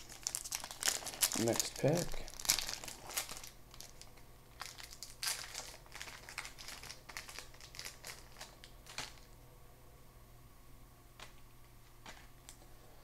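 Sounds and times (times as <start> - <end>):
wrapper being torn and crinkled: 0.0 - 9.3.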